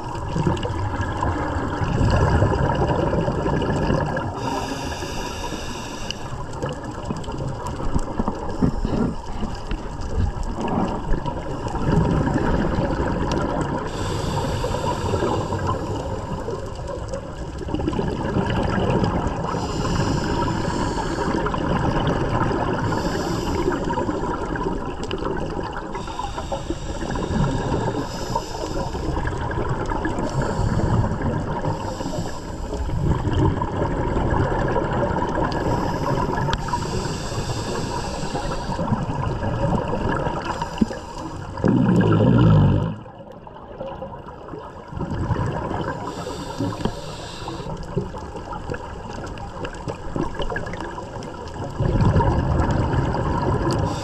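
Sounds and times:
exhaled bubbles rushing: 0.0 - 4.9, 6.4 - 54.0
regulator inhale hiss: 4.3 - 6.6, 13.8 - 16.6, 19.3 - 21.6, 22.6 - 24.3, 25.7 - 33.3, 35.4 - 39.2, 40.2 - 41.6, 46.0 - 48.2, 53.6 - 54.0
loud burst of bubbles: 41.6 - 43.1.

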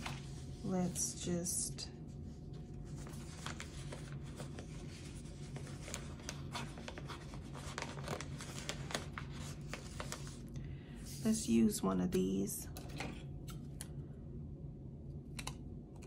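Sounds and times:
paper rustling: 0.0 - 1.0, 2.6 - 11.2
low hum: 10.4 - 16.0.

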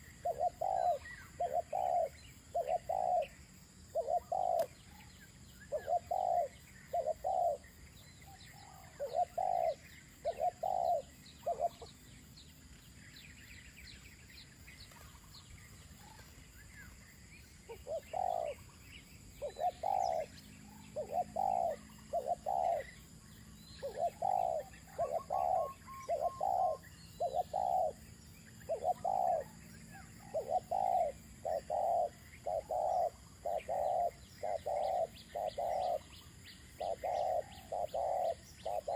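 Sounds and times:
doves cooing: 0.0 - 4.8, 5.6 - 7.7, 8.5 - 12.0, 17.6 - 18.8, 19.4 - 23.1, 23.8 - 28.0, 28.7 - 38.9
small birds chirping: 0.0 - 38.9.

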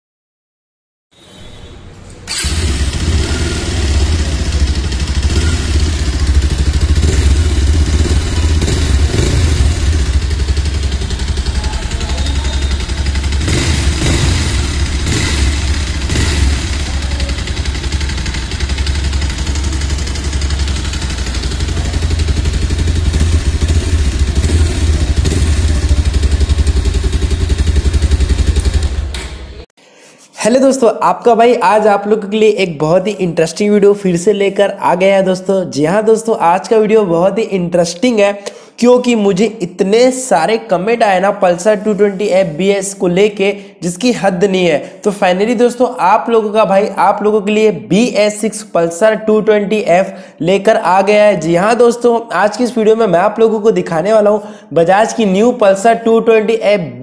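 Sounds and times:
motorcycle engine running: 2.3 - 29.6.

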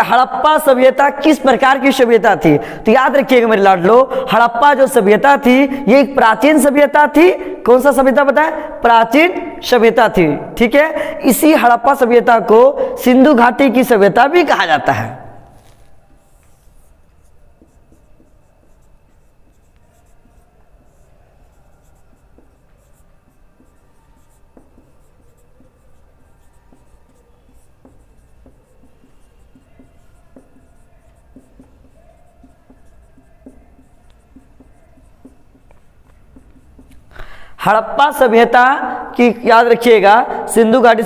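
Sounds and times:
marker squeaking on whiteboard: 13.7 - 38.2.

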